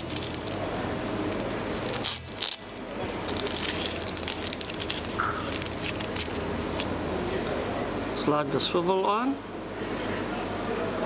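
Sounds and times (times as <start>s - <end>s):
plastic packet crinkling: 0.0s - 6.9s
steady low hum: 0.0s - 11.0s.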